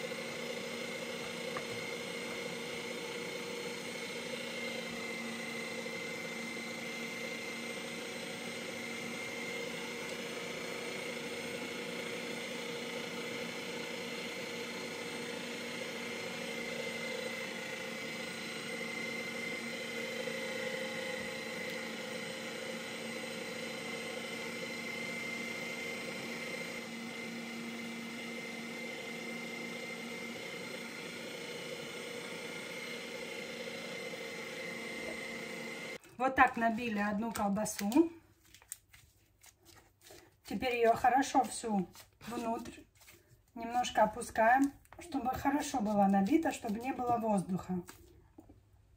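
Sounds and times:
electric meat grinder running: 0:00.0 - 0:36.0.

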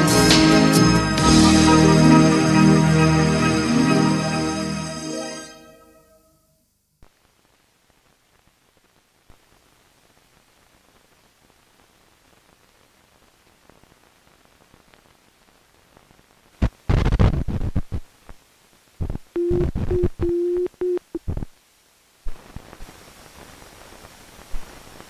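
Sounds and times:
faint hiss: 0:05.8 - 0:19.8, 0:21.1 - 0:25.0
loud static noise bursts: 0:07.0 - 0:20.3, 0:21.0 - 0:25.0
crackles and clicks: 0:07.0 - 0:25.0.

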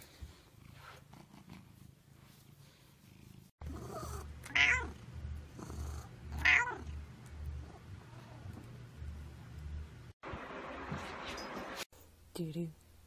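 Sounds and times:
cat purring: 0:00.1 - 0:09.7.

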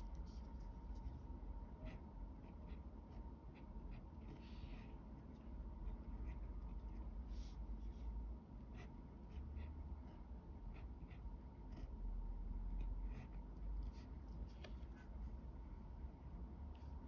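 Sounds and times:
low steady hum: 0:00.0 - 0:17.0
pen scratching on paper: 0:01.8 - 0:05.0, 0:05.8 - 0:08.0, 0:08.6 - 0:12.0, 0:12.7 - 0:15.2.

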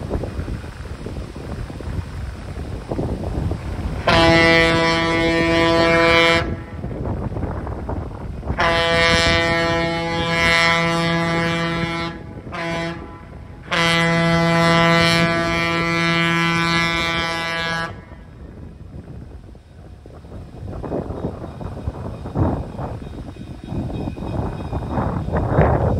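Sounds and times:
running train: 0:00.0 - 0:25.9
locomotive air horn blasts: 0:03.9 - 0:07.1, 0:08.4 - 0:18.3.

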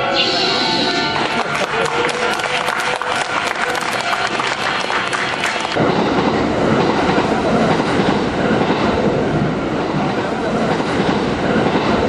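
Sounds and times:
train running past: 0:00.0 - 0:12.0.

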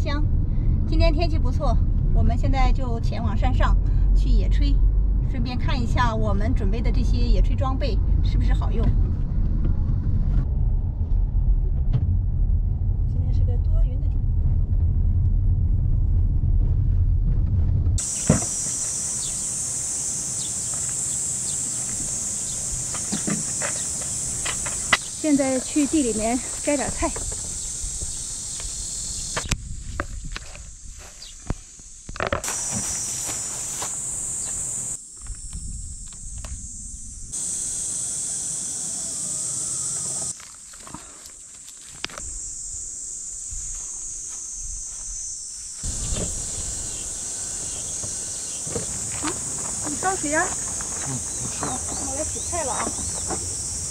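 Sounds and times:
low rumble: 0:00.0 - 0:18.2, 0:34.7 - 0:37.4
car driving rumble: 0:00.0 - 0:30.8, 0:45.8 - 0:53.9
bird chirps: 0:18.0 - 0:25.4, 0:31.2 - 0:31.5, 0:51.0 - 0:53.4
insects chorus: 0:18.0 - 0:53.9.

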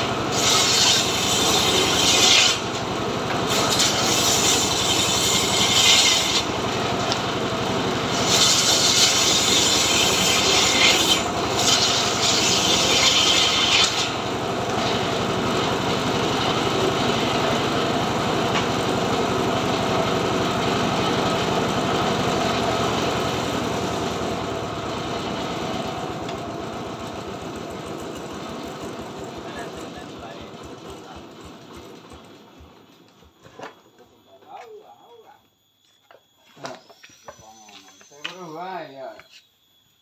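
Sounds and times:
saw blade cutting board: 0:00.0 - 0:07.2, 0:07.9 - 0:15.7
sawmill engine running: 0:00.0 - 0:34.6.

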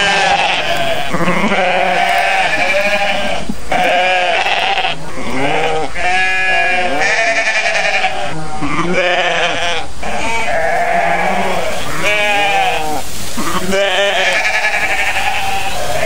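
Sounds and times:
goats bleating: 0:00.0 - 0:16.0.

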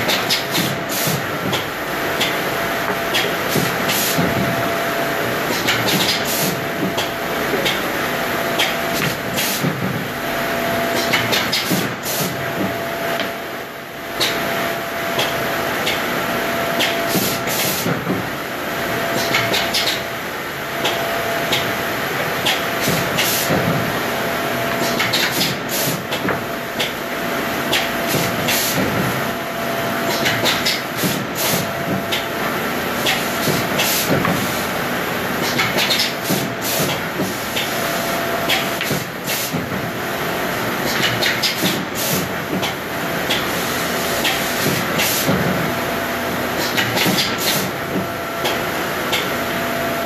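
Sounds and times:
woodworking machine whine: 0:00.8 - 0:35.4.

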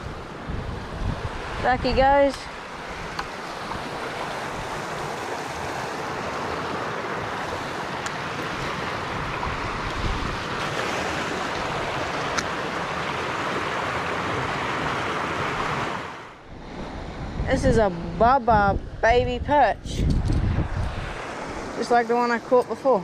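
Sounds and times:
water rushing over rapids: 0:00.0 - 0:17.0.

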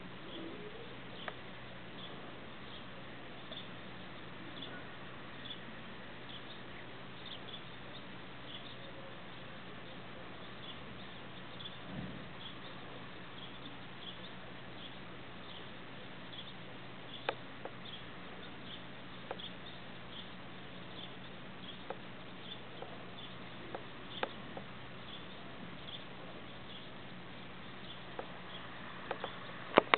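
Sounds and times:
sharp clicks: 0:29.0 - 0:29.9.

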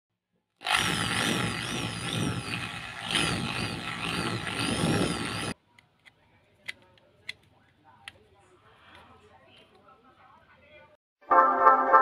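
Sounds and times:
electric drill boring metal: 0:00.6 - 0:05.6.

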